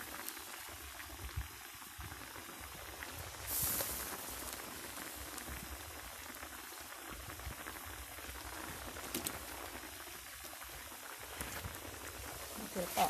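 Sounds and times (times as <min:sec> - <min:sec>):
curry bubbling in a wok: 0:00.0 - 0:13.0.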